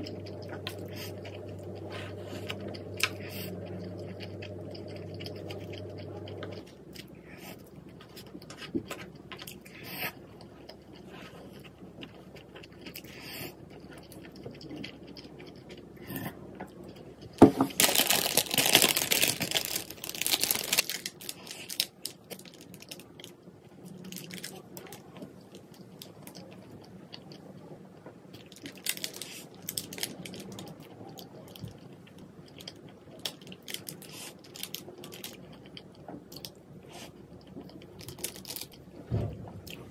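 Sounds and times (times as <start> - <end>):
crunching and chewing: 0.0 - 39.9.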